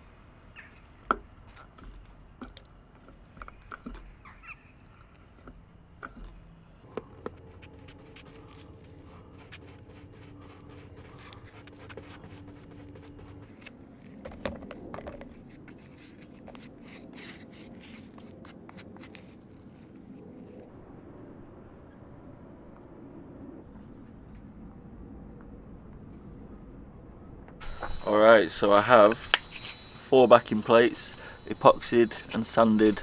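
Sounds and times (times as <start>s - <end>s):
faint steady hum: 0.0s - 33.0s
scratchy brush strokes: 6.8s - 14.2s, 15.2s - 20.7s
stick scraping in plastic cup: 6.9s - 20.6s, 27.9s - 33.0s.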